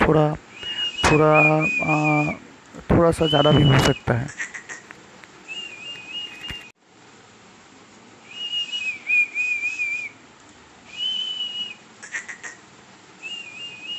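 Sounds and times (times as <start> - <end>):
puppies whining: 0.6 - 2.6, 3.3 - 6.7.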